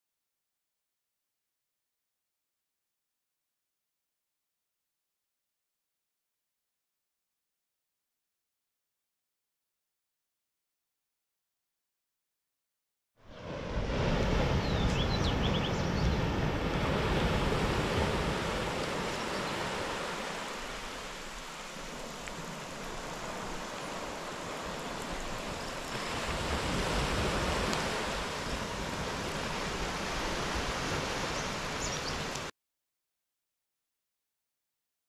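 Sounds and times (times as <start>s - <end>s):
waves washing onto beach: 13.3s - 32.5s
wind rumbling on microphone: 13.3s - 32.5s.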